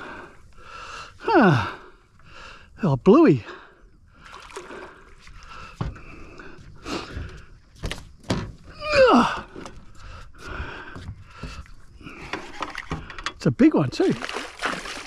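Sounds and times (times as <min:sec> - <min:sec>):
knocks and thuds in boat: 0:05.6 - 0:15.0.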